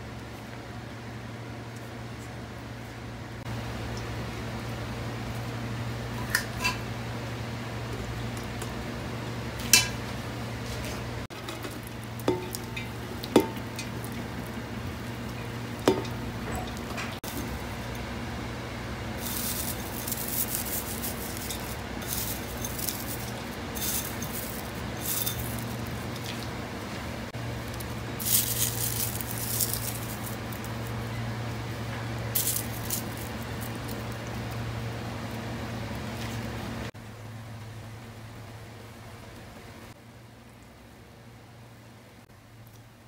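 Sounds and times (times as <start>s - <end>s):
steady low hum: 0.0s - 43.0s
food scattered onto rice rustling: 19.2s - 31.1s, 32.2s - 34.6s.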